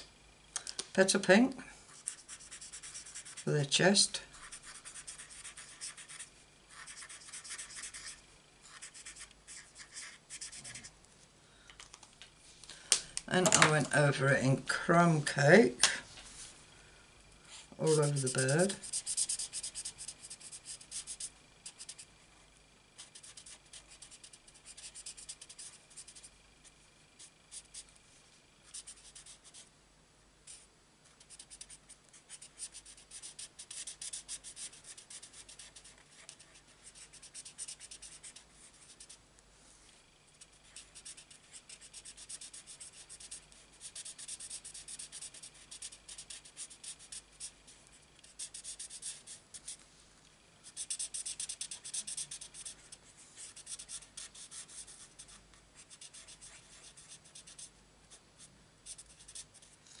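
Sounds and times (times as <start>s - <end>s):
marker scratching on cardstock: 2.0s - 3.5s, 4.4s - 10.9s, 17.8s - 22.1s, 23.0s - 26.3s, 28.7s - 29.6s, 31.2s - 39.2s, 40.4s - 47.6s, 48.2s - 49.8s, 50.7s - 57.7s, 58.8s - 59.8s.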